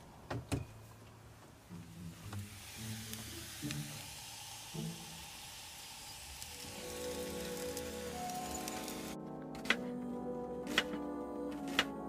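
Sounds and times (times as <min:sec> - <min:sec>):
potatoes sizzling in a skillet: 0:02.4 - 0:09.2.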